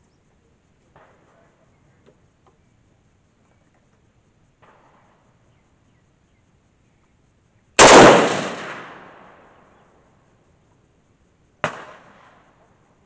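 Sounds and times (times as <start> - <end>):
loud rifle shot: 7.8 - 9.4, 11.6 - 12.4
quieter gunshot: 7.8 - 9.4, 11.6 - 12.5.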